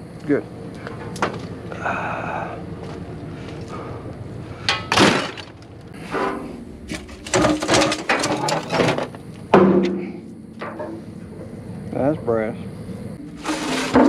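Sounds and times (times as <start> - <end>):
scrap metal clanking: 4.6 - 11.1, 13.2 - 14.0.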